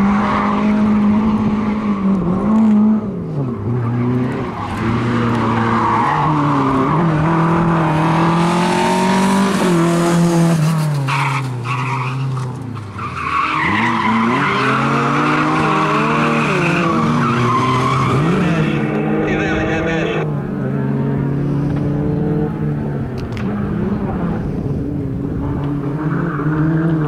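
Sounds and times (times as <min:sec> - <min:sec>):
car engine revving: 0:00.0 - 0:27.0
tyre squeal: 0:10.9 - 0:19.8.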